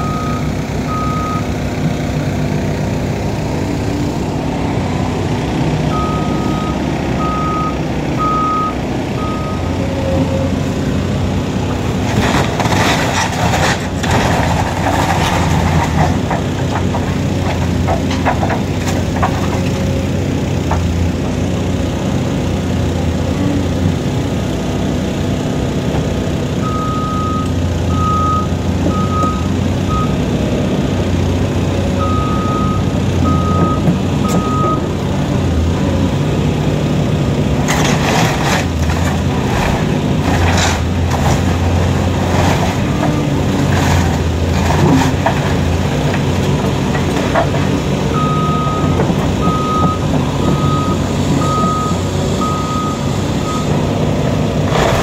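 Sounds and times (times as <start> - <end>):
reversing alarm beeping: 0.0 - 1.5, 5.9 - 9.9, 26.6 - 30.2, 32.0 - 34.9, 48.1 - 53.9
diesel demolition machine running: 0.0 - 55.0
cracks and crashes of demolition: 12.0 - 19.9, 37.6 - 47.8.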